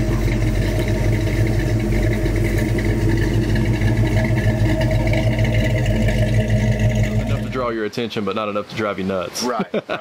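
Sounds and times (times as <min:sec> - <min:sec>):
car engine running: 0:00.0 - 0:07.8.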